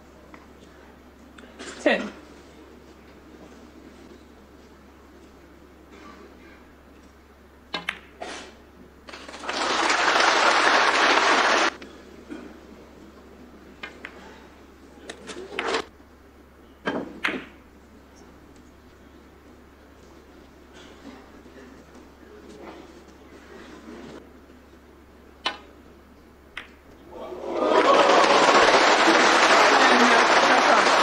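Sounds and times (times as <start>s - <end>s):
audience applauding: 9.1s - 11.8s, 27.2s - 31.0s
snooker balls clicking: 26.5s - 27.0s.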